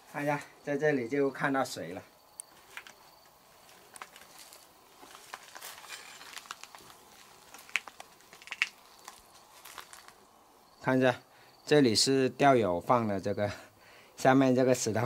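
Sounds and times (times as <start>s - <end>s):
footsteps on rock and brush: 2.5s - 10.2s.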